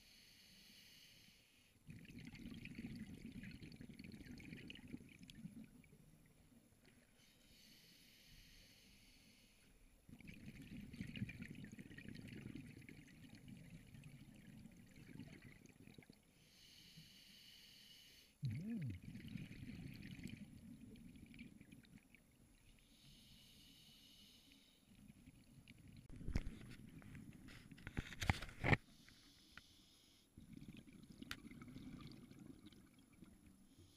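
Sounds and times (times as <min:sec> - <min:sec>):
scuba regulator inhale hiss: 0:00.0 - 0:01.7, 0:07.2 - 0:09.6, 0:16.4 - 0:18.4, 0:22.9 - 0:24.8
bubbling exhaled air underwater: 0:18.4 - 0:21.9, 0:30.4 - 0:33.4.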